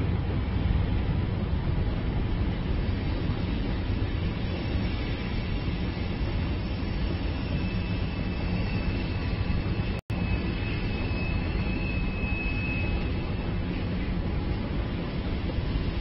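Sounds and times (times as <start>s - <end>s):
city rumble with hiss: 0.0s - 16.0s
thin high whine: 4.2s - 14.1s.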